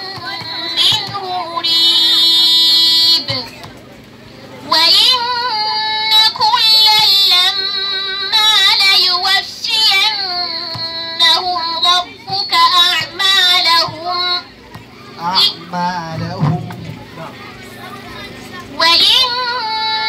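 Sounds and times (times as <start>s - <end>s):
girl chanting melodically: 0.0s - 3.6s, 4.6s - 14.6s, 17.8s - 20.0s.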